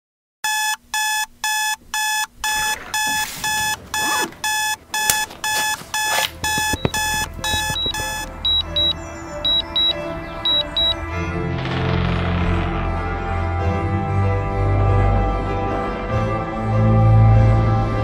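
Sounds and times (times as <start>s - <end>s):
smartphone alarm beeping: 0.4s - 11.0s
background music with high pips: 1.6s - 18.0s.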